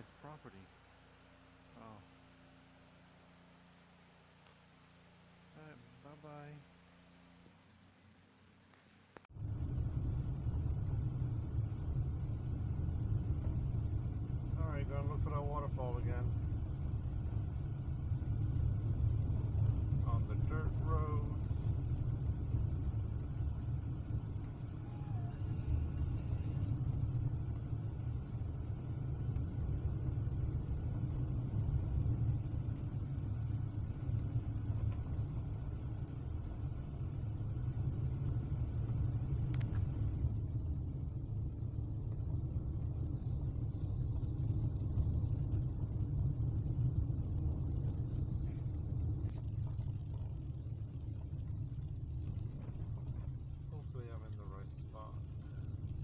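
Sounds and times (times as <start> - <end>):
light road hiss: 0.0 - 56.0.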